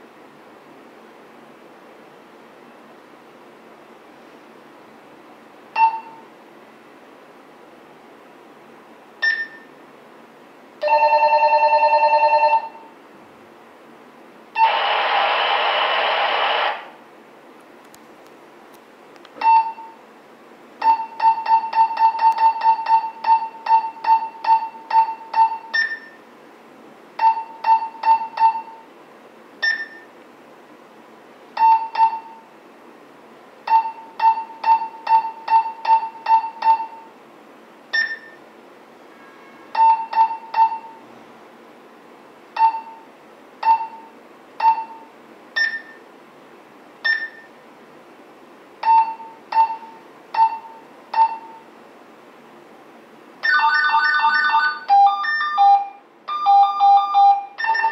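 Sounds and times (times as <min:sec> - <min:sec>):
short electronic beeps: 0:05.8 - 0:06.3, 0:09.2 - 0:09.7, 0:14.6 - 0:15.1, 0:19.4 - 0:20.0, 0:20.8 - 0:26.2, 0:29.6 - 0:30.1, 0:37.9 - 0:38.4, 0:43.6 - 0:46.0, 0:47.0 - 0:47.5, 0:48.8 - 0:51.6
higher-pitched beep: 0:09.2 - 0:09.7, 0:29.6 - 0:30.1, 0:38.0 - 0:38.4, 0:45.6 - 0:46.0.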